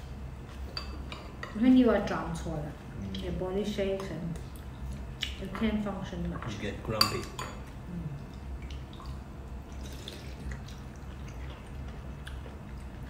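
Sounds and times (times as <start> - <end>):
low steady hum: 0.0 - 13.0
spoons clinking in ceramic bowls: 6.9 - 7.6.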